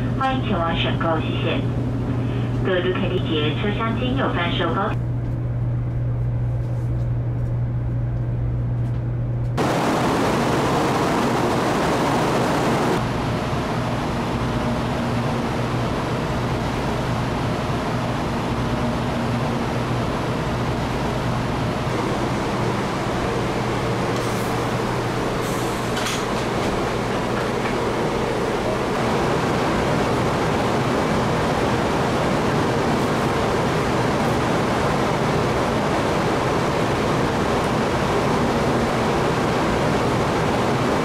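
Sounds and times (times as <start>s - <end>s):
train interior low hum: 0.0s - 41.0s
train rushing running noise: 9.6s - 41.0s.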